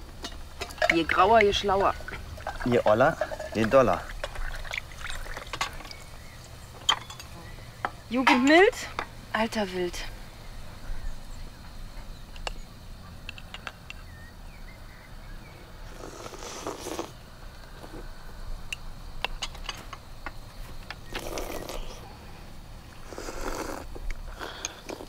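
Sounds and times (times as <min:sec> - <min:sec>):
person slurping: 0:15.9 - 0:17.2, 0:21.2 - 0:22.0, 0:23.0 - 0:25.0.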